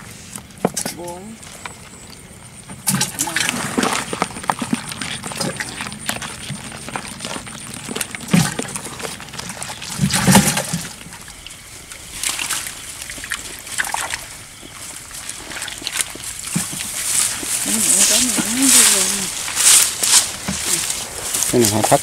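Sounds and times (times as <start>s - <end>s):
water sloshing and splashing: 0.6s - 22.0s.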